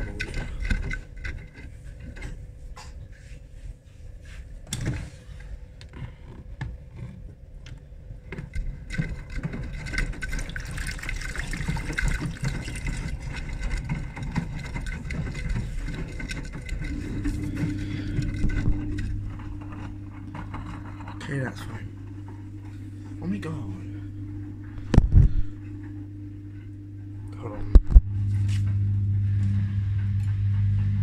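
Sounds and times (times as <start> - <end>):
water sloshing in washing machine: 0.0 - 3.3, 8.2 - 25.6
rubbing and knocks from handling: 0.0 - 5.3
steady low hum: 0.0 - 31.0.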